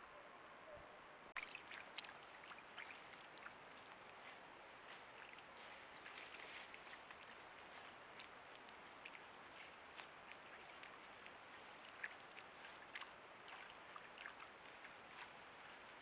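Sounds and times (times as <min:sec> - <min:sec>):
faint high-pitched electronic whine: 0:00.0 - 0:01.5
soft ticks and crackles: 0:01.4 - 0:16.0.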